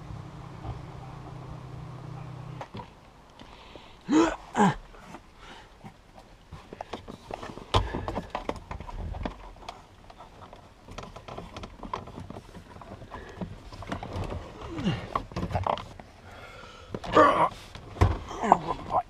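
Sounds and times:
plastic trim and carpet rustling: 0:05.0 - 0:16.2
clicks and knocks of handling: 0:05.8 - 0:16.2.

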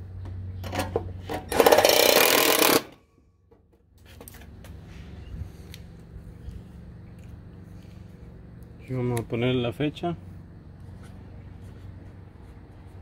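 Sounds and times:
power tool rattling buzz: 0:00.7 - 0:03.0.

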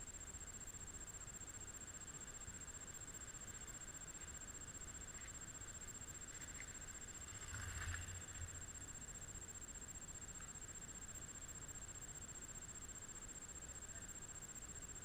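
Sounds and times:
constant high whine: 0:00.0 - 0:15.0
faint outdoor hiss: 0:00.0 - 0:15.0
soft rustle: 0:06.0 - 0:08.8.

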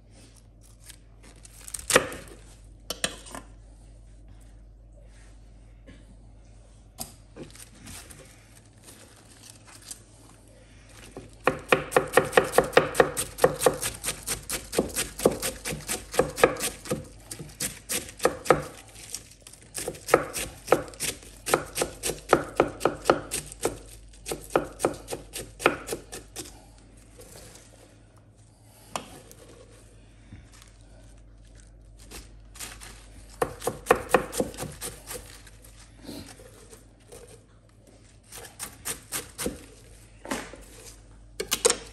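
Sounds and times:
knife chopping cabbage on wooden board: 0:11.4 - 0:19.0, 0:19.7 - 0:26.6, 0:32.1 - 0:35.5, 0:38.3 - 0:39.7.

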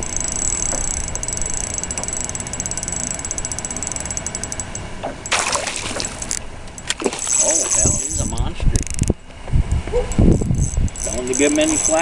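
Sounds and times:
fishing reel clicking rapidly: 0:00.0 - 0:04.8, 0:07.2 - 0:09.1, 0:10.2 - 0:12.0.

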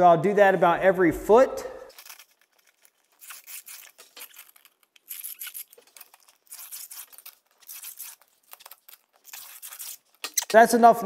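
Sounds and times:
pencil scraping on mortar: 0:03.1 - 0:10.6.

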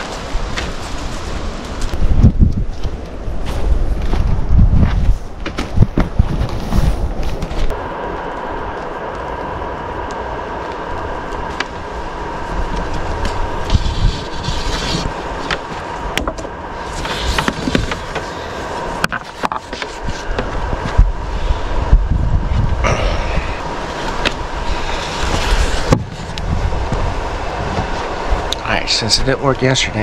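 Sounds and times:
steady low rumble: 0:00.0 - 0:30.0.

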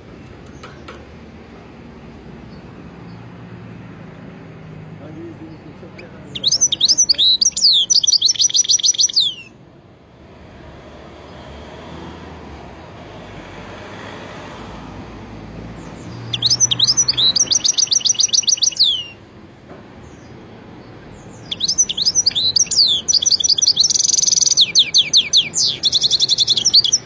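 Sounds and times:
finch singing with trills: 0:05.1 - 0:09.6, 0:15.7 - 0:19.2, 0:20.0 - 0:27.0.

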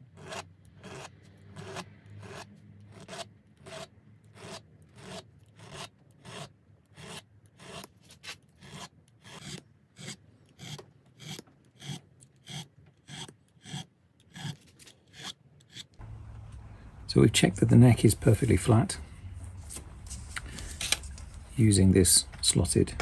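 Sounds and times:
hand file scraping metal: 0:00.0 - 0:16.0.

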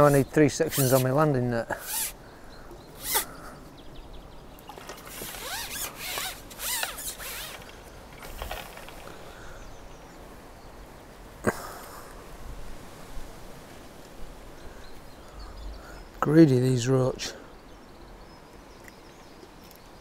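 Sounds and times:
squeaky rubbing scrapes: 0:00.0 - 0:01.2, 0:01.8 - 0:02.2, 0:03.0 - 0:03.3, 0:05.0 - 0:07.7.

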